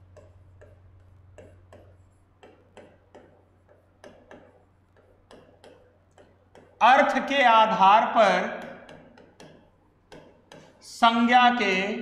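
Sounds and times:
stylus tapping on glass: 0.0 - 6.8, 8.6 - 10.7
steady low hum: 0.0 - 12.0.

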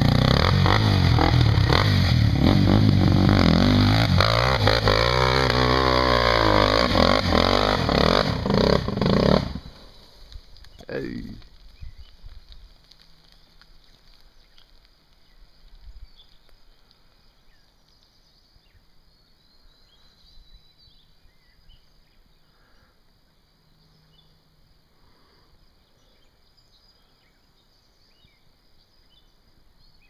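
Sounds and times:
faint insect hum: 9.6 - 30.0
small birds chirping: 9.8 - 12.7, 13.3 - 30.0.

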